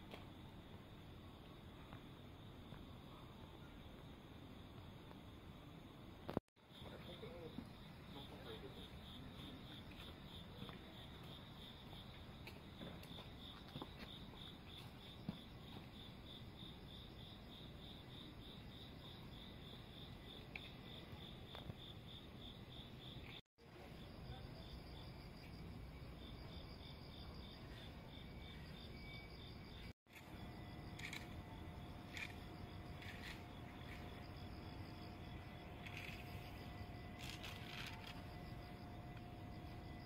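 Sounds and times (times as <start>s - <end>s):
insects chirping: 0.1s - 40.0s
higher insect chirp: 6.7s - 40.0s.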